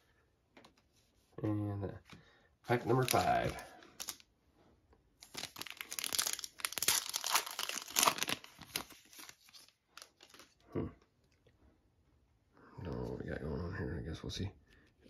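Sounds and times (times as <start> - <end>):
foil wrapper tearing and crinkling: 2.9 - 4.2, 5.2 - 10.6.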